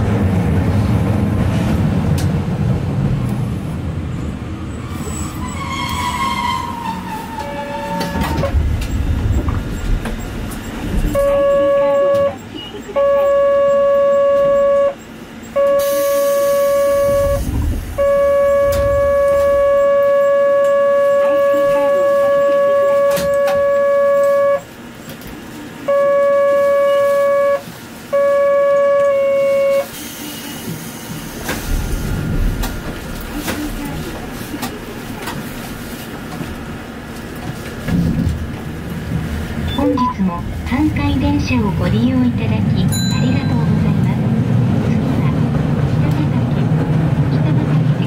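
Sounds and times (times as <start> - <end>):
tram running rumble: 0.0 - 48.0
electric horn blasts: 10.9 - 24.7, 25.8 - 29.9.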